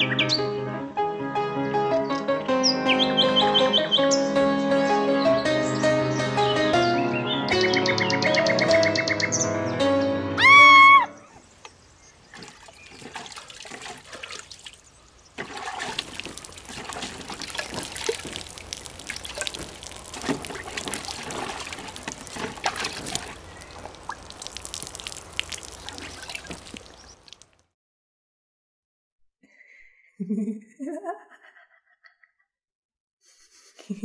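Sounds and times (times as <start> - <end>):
liquid trickling onto ground: 11.4 - 27.6.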